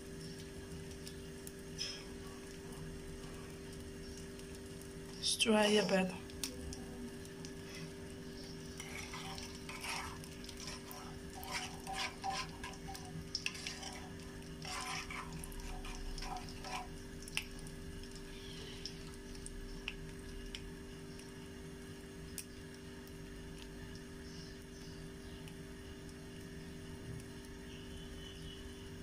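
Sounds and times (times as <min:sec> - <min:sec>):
faint oil sizzle: 0:00.0 - 0:29.0
steady low hum: 0:00.0 - 0:29.0
utensil scraping metal pan: 0:08.5 - 0:17.0.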